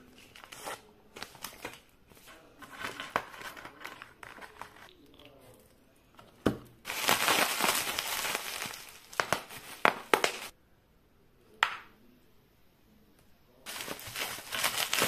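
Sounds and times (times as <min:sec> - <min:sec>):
bubble wrap crinkling: 0:06.9 - 0:10.5, 0:13.7 - 0:15.0
bubble wrap snaps: 0:06.9 - 0:10.5, 0:13.7 - 0:15.0.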